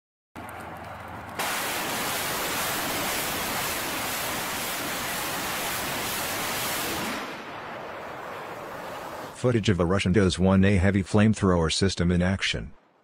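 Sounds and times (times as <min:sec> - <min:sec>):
rockets launching roar: 0:01.3 - 0:09.4.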